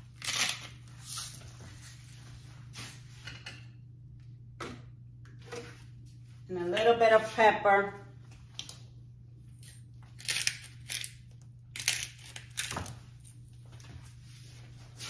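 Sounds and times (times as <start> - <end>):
pepper grinder crunching: 0.1 - 0.8, 9.5 - 13.0.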